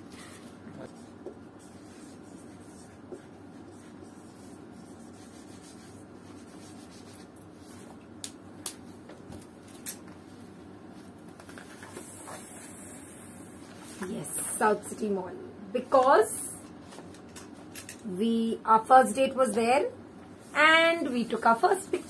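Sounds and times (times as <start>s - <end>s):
steady low hum: 0.0s - 22.0s
marker pens writing: 0.9s - 7.9s.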